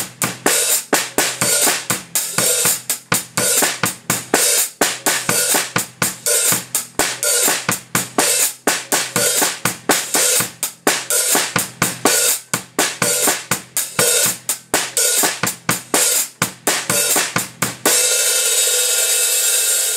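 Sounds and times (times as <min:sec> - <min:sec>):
drum kit playing: 0:00.0 - 0:19.9
hi-hat pattern: 0:00.0 - 0:19.9
cymbal crash ringing: 0:17.9 - 0:19.9.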